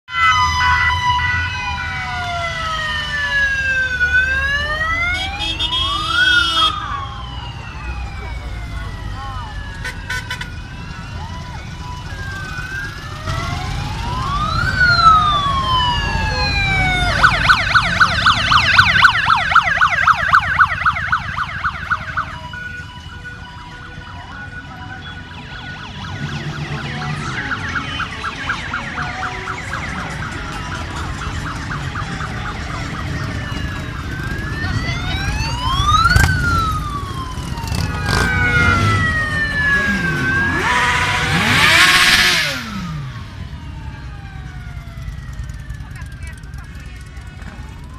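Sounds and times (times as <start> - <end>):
sirens wailing and yelping: 0.0 - 47.9
motorcycle engines rumbling: 0.1 - 47.9.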